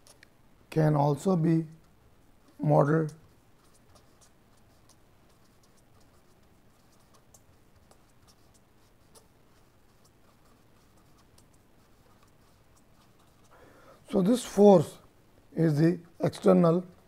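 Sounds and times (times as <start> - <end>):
marker pen scratching on paper: 1.7 - 13.6.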